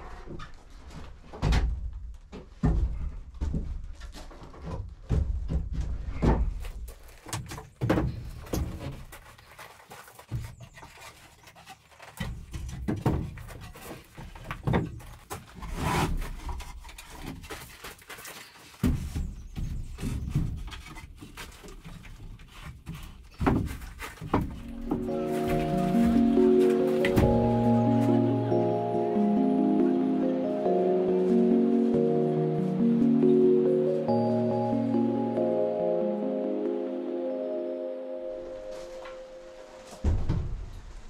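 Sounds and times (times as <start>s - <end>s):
wooden knocks and thuds: 1.2s - 9.2s, 12.2s - 15.6s, 18.8s - 25.1s.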